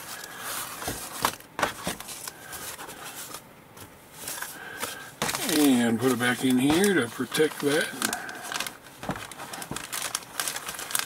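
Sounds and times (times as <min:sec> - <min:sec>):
foam sheet rustling: 0:04.2 - 0:11.0.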